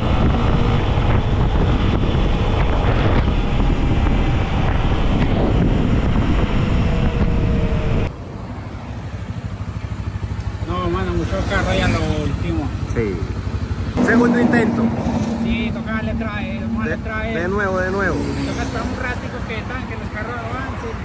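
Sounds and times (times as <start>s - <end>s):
heavy wind on camera microphone: 0.0s - 8.1s
motorcycle engine running: 0.0s - 18.1s.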